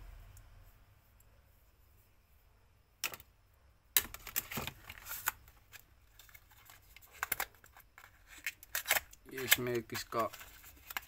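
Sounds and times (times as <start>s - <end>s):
cardboard clicks and rustles: 4.0s - 11.0s.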